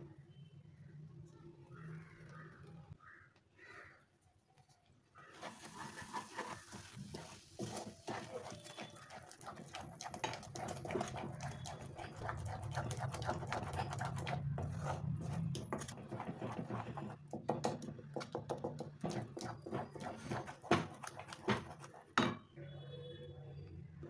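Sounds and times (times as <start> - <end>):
spatula stirring sticky mixture: 5.2 - 22.2.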